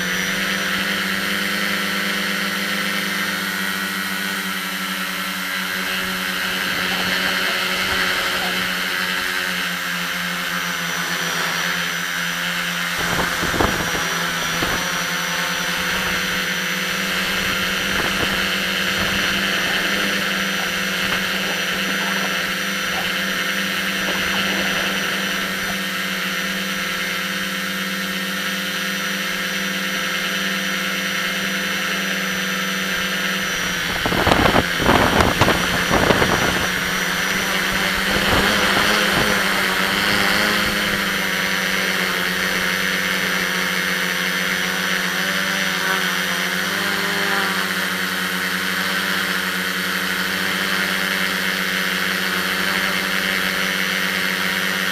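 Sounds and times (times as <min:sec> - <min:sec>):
drone motors whining: 0:00.0 - 0:54.9.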